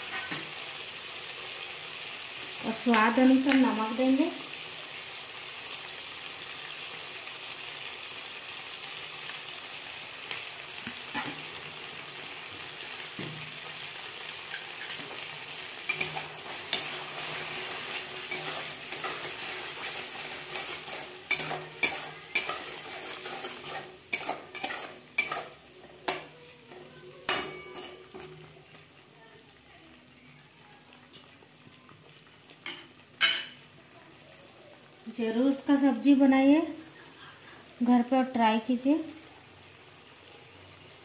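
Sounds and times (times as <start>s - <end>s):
food sizzling in oil: 0.0s - 41.0s
metal spatula scraping pan: 15.9s - 28.5s.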